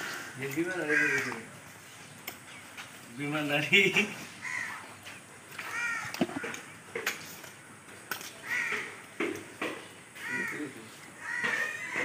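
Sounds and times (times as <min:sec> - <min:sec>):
crows cawing: 0:00.0 - 0:01.6, 0:04.4 - 0:05.0, 0:05.6 - 0:06.7, 0:08.4 - 0:12.0
sharp knocks: 0:06.2 - 0:07.1.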